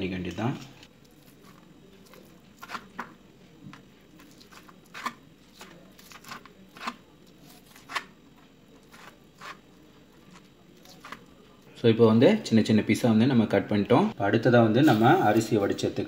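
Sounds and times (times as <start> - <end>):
knife cutting crisp fried chicken: 1.1 - 3.1, 4.2 - 8.1, 8.8 - 9.6.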